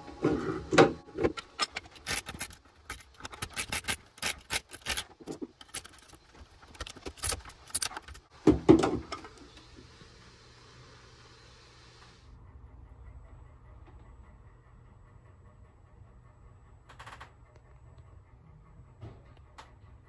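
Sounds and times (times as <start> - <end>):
metal tool scraping and clicking: 1.2 - 8.3.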